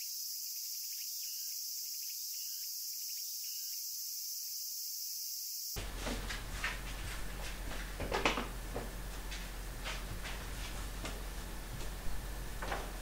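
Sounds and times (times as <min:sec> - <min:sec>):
insects shrilling: 0:00.0 - 0:05.8.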